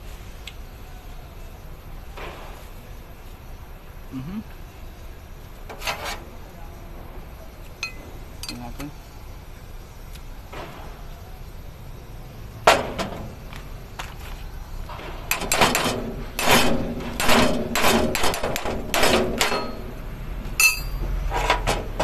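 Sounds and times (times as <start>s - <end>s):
tool tapping metal: 7.7s - 8.9s, 15.3s - 20.0s, 20.6s - 22.0s
ringing metal clink: 7.8s - 8.8s, 19.4s - 19.9s, 20.6s - 21.1s
metal knocks and rattles: 12.6s - 14.2s, 14.8s - 22.0s.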